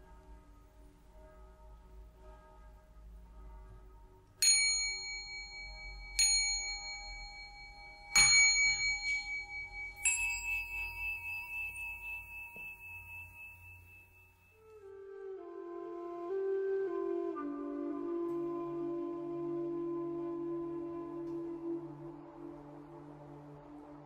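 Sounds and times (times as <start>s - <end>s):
bell chimes ringing: 4.4s - 14.6s.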